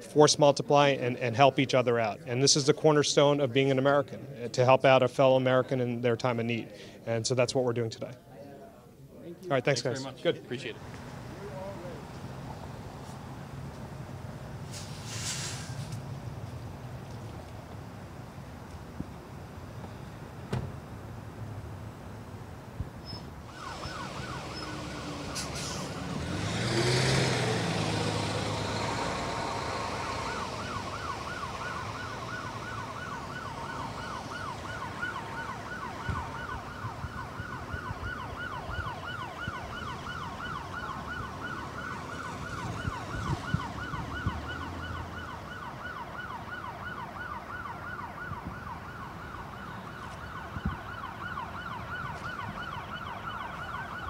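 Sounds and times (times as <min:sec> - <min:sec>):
police siren yelping: 0:23.4 - 0:26.9, 0:27.8 - 0:54.0
vehicle passing close: 0:23.5 - 0:45.9.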